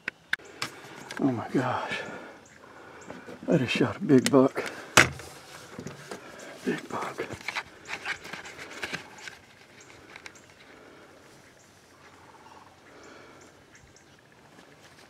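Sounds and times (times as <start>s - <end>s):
turkey gobbling: 9.9s - 14.3s.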